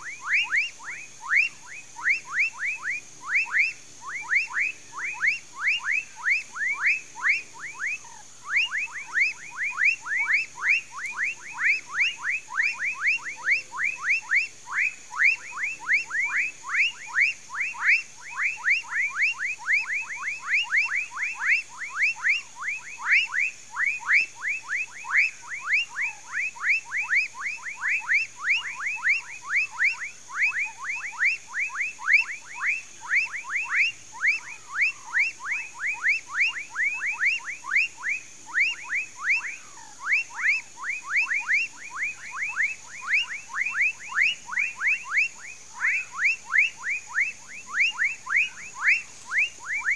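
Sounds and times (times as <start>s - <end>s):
frogs calling: 0.0s - 49.9s.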